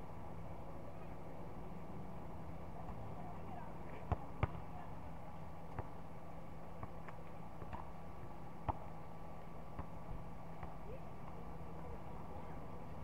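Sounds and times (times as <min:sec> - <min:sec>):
steady background hum: 0:00.0 - 0:13.0
basketball bouncing on hard court: 0:04.1 - 0:04.6.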